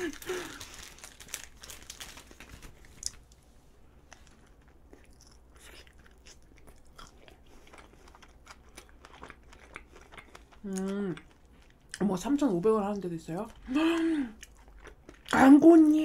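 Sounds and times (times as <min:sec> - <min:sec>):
plastic wrapper crinkling: 0:00.0 - 0:03.5
faint biting and chewing: 0:04.0 - 0:12.0.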